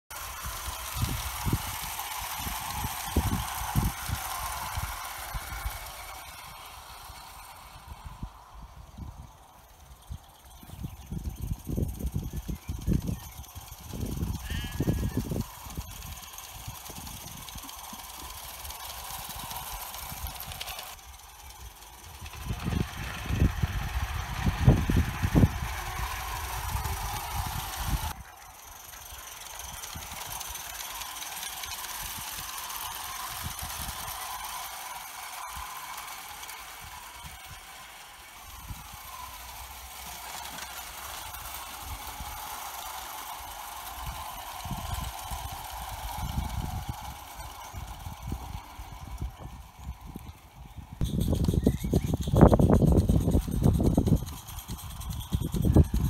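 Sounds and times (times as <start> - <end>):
toy wagons rattling on track: 0.0 - 56.0
steam hissing: 13.4 - 49.0.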